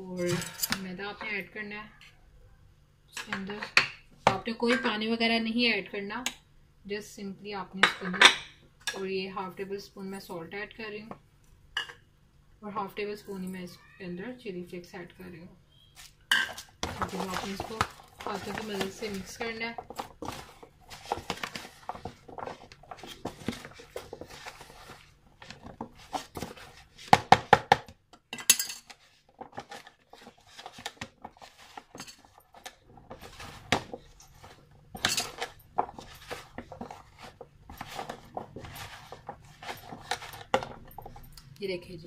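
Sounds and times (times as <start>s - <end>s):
potato sticks rustling in container: 16.0s - 27.1s, 28.9s - 41.3s.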